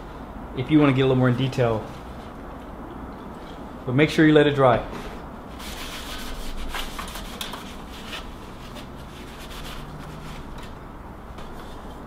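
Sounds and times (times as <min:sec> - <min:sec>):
hand rubbing computer part: 0:05.6 - 0:10.8.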